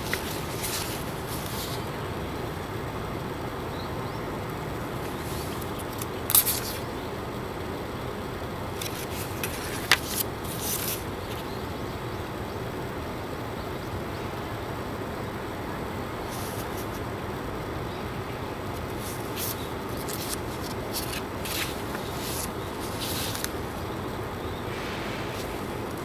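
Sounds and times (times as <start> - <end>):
paper rustling: 0.0 - 2.0, 5.0 - 6.9, 8.7 - 11.5, 16.3 - 17.0, 18.7 - 24.1
distant traffic hum: 0.0 - 26.0.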